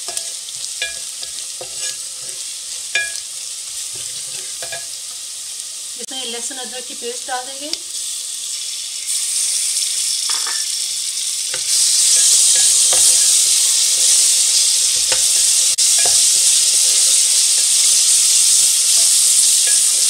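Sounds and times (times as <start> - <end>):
paste sizzling in hot oil: 0.0 - 20.0
wooden spatula scraping metal pot: 0.1 - 2.5.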